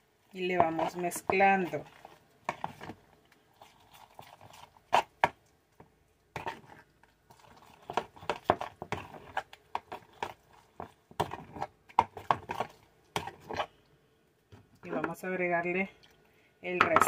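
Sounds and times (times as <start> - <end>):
utensil stirring batter in glass bowl: 0.3 - 5.5, 6.3 - 13.7.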